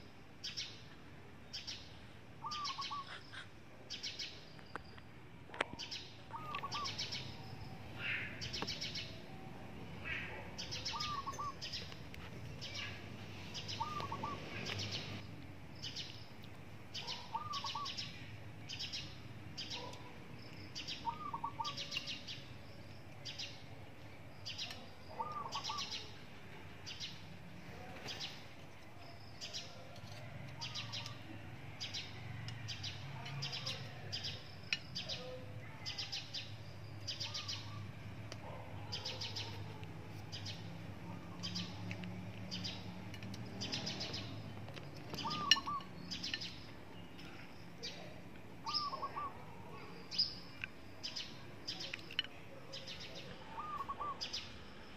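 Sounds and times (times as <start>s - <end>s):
birds chirping high notes: 5.9s - 15.3s, 45.1s - 48.0s.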